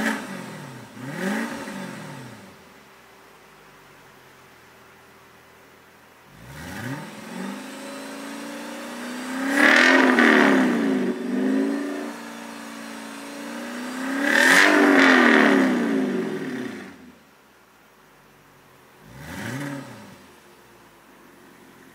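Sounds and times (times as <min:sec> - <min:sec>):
car engine revving: 0:00.0 - 0:02.9, 0:06.2 - 0:17.2, 0:18.8 - 0:21.9.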